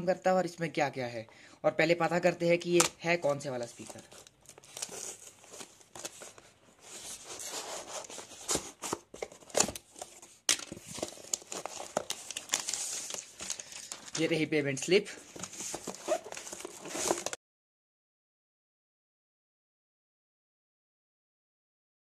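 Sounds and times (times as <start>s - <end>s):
cardboard crinkling and tearing: 3.6s - 14.4s, 15.2s - 17.4s.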